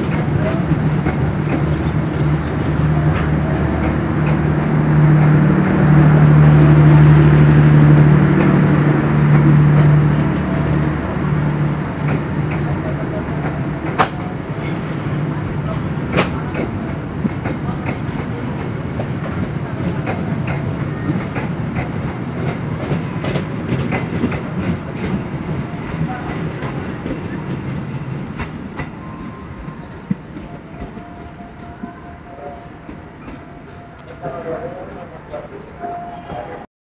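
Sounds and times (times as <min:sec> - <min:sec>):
train wheels clicking over rail joints: 0:00.0 - 0:10.8, 0:12.0 - 0:29.0.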